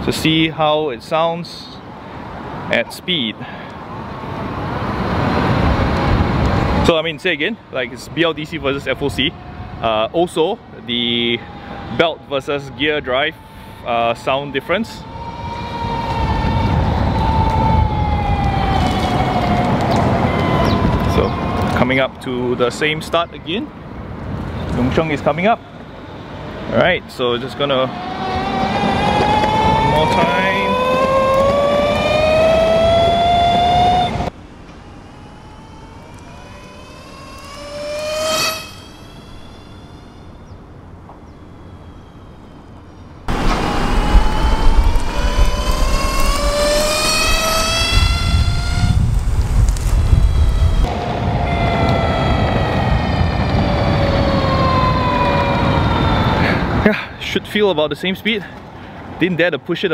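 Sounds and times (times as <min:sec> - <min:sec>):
wheels and wind rumble: 0:00.0 - 0:57.9
electric skateboard motor whining: 0:28.5 - 0:54.8.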